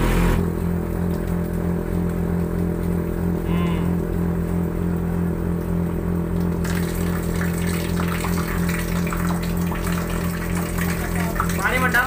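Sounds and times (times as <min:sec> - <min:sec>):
suction machine droning: 0:00.0 - 0:12.0
water gushing and splashing: 0:06.5 - 0:12.0.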